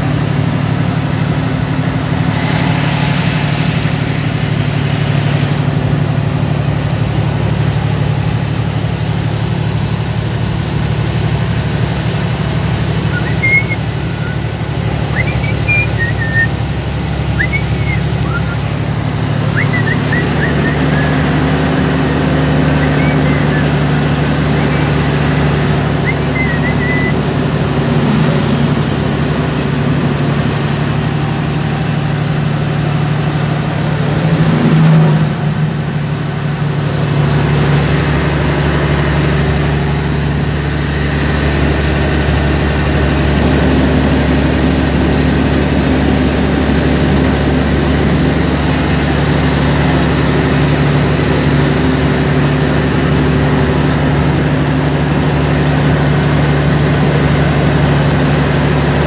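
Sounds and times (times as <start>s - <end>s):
diesel truck engine running: 0.0s - 59.0s
thin high whistle: 1.7s - 6.9s, 13.0s - 27.4s.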